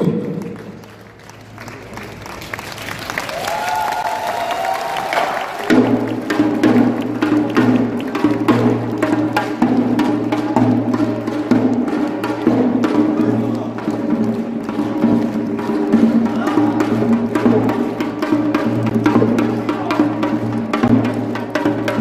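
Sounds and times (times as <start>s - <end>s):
fast driving drumming: 4.8s - 22.0s.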